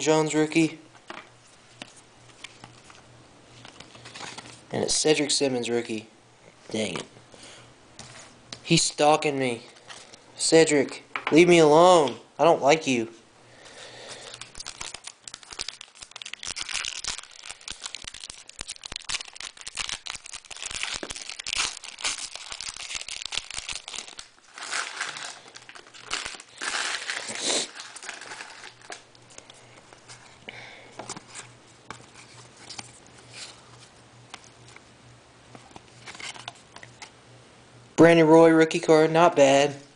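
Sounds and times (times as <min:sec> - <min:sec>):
rustling of wrapper and cards: 0:01.4 - 0:04.7, 0:09.6 - 0:10.2, 0:14.0 - 0:34.9, 0:35.5 - 0:37.1
foil wrapper tearing and crinkling: 0:14.2 - 0:29.5.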